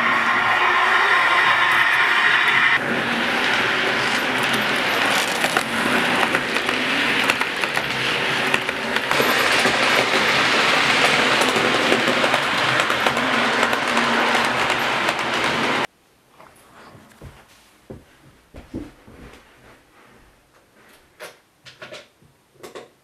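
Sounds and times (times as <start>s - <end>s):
model train motor whirring: 2.1s - 15.9s
wheels clicking over rail joints: 2.8s - 15.9s.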